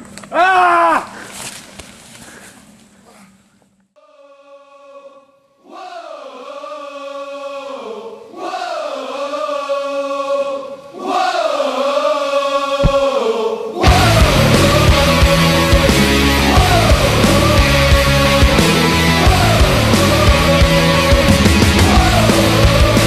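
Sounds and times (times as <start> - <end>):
low thump: 12.8 - 13.1.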